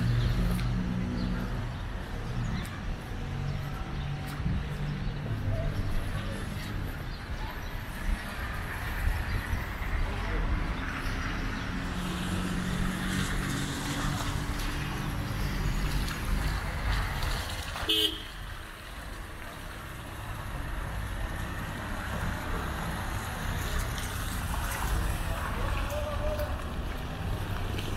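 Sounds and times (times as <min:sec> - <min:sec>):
traffic background: 0:00.0 - 0:27.9
car horn toot: 0:17.9 - 0:18.4.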